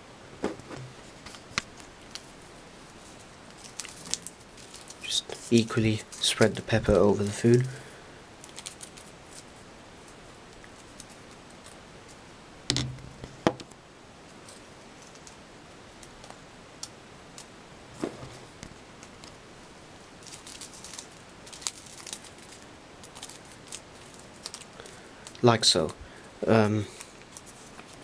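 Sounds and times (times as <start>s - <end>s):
paper sachet rustling: 1.1s - 7.6s, 20.2s - 25.0s.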